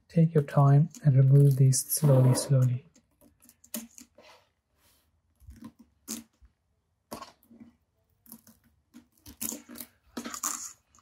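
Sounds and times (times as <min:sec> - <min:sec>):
crackles of prying off adhesive: 0:07.2 - 0:10.5.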